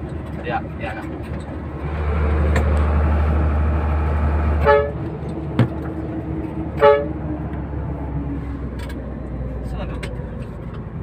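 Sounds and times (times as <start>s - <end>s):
diesel engine drone: 0.0s - 11.0s
truck horn toots: 4.5s - 5.1s, 6.7s - 7.2s.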